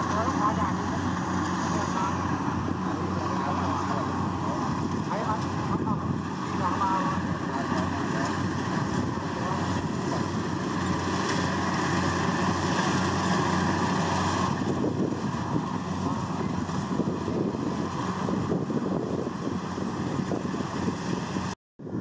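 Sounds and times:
diesel engine humming: 0.0 - 22.0
threshing machinery noise: 0.0 - 22.0.

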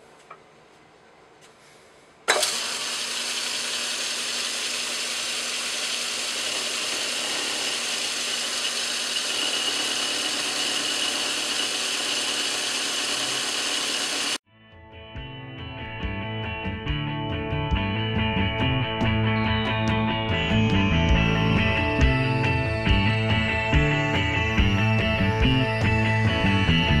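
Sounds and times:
metal lathe running: 2.3 - 14.4.

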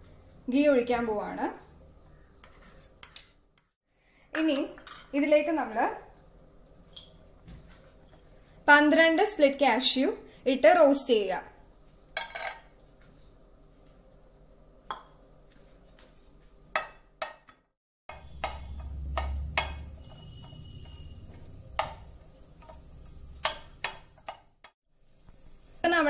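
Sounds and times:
spatula scraping frying pan: 2.4 - 3.4, 18.1 - 22.0.

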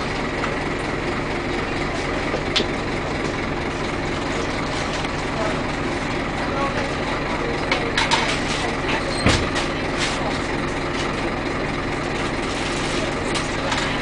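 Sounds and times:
bus engine drone: 0.0 - 14.0.

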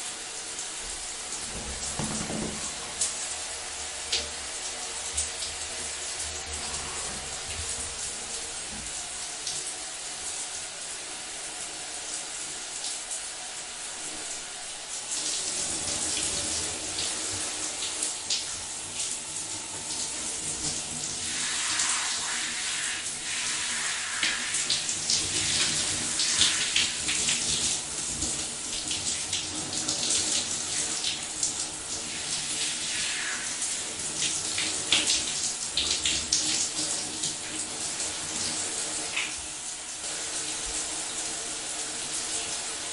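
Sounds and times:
shower water running and splashing: 0.0 - 42.9.

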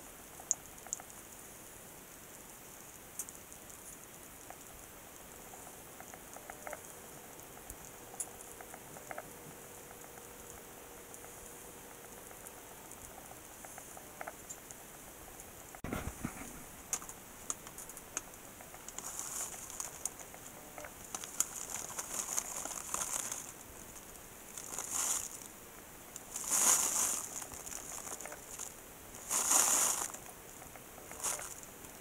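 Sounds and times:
plastic bag crinkling: 16.9 - 25.6, 26.2 - 31.8.

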